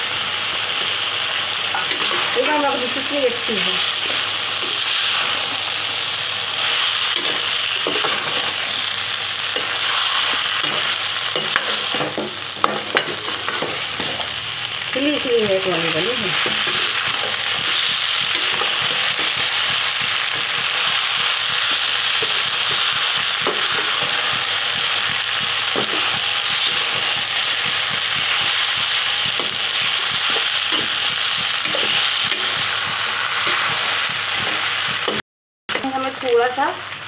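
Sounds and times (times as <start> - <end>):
pasta sizzling in a pan: 0.0 - 37.0
spatula clicking and scraping pan: 1.7 - 3.1, 6.6 - 8.8, 9.5 - 14.4, 16.0 - 35.9.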